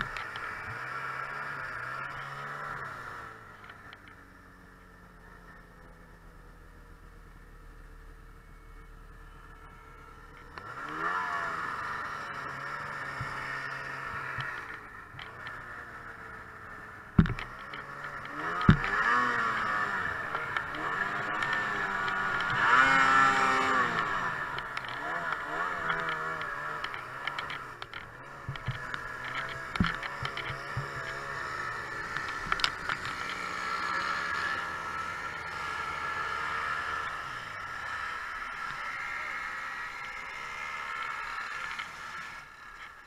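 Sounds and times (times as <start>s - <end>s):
snowmobile engine revving: 0.0s - 3.6s, 7.9s - 43.0s
sharp knocks: 17.2s - 17.5s.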